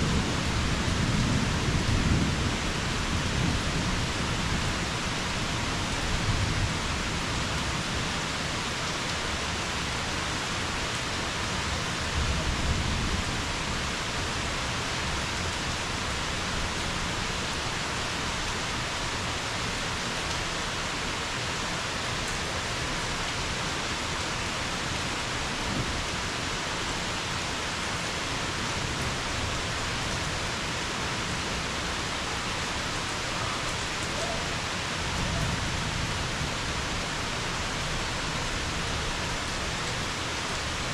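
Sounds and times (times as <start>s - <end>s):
low thunder rumbles: 0.0s - 8.0s
heavy rain falling: 0.0s - 40.9s.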